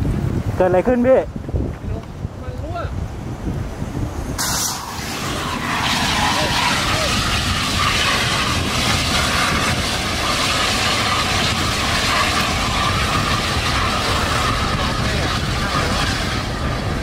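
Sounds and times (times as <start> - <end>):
flames rushing: 4.0 - 17.0.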